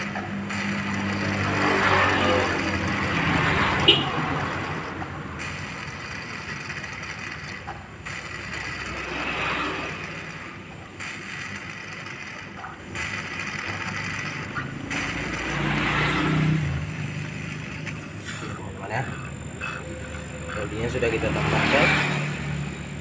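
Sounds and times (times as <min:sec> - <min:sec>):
refrigerator compressor running: 0:00.0 - 0:23.0
hiss of oil drawn through pipe: 0:16.8 - 0:19.8.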